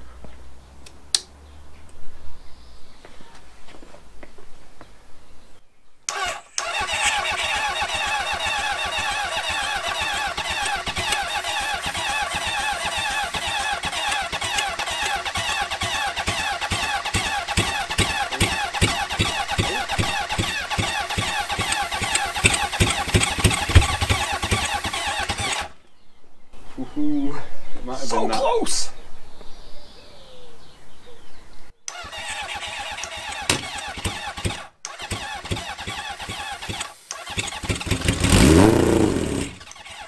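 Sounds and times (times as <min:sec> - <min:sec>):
motorcycle engine starting and running: 0:06.1 - 0:25.8, 0:31.9 - 0:40.0.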